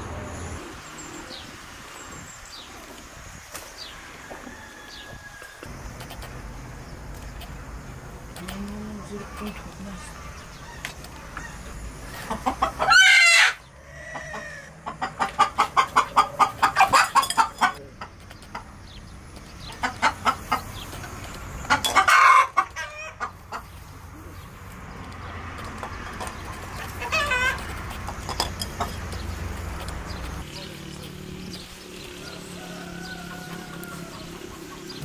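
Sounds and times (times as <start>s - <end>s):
hen clucking: 8.3s - 30.7s, 32.2s - 35.0s.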